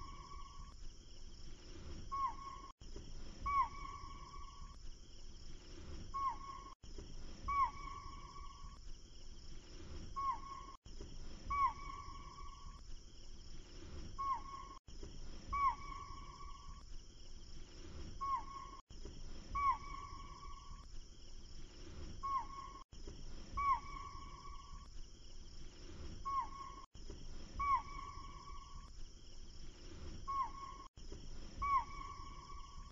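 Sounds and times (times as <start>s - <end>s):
bird-like whistling call: 15.5s - 16.7s.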